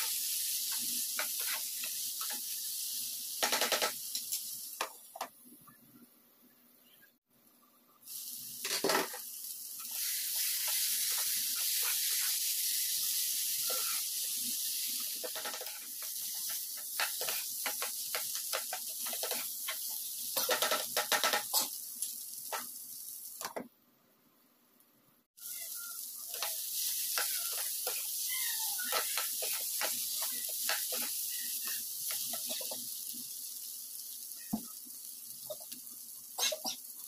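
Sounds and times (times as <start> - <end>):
food sizzling in a pan: 0.0 - 5.3, 8.0 - 23.6, 25.4 - 37.0
spatula scraping and stirring: 0.7 - 2.4, 15.0 - 21.8, 26.3 - 32.9.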